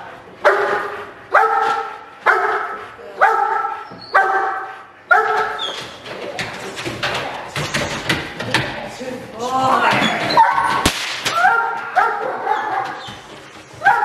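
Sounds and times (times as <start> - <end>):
dog barking: 0.4 - 5.6, 11.4 - 13.0, 13.8 - 14.0.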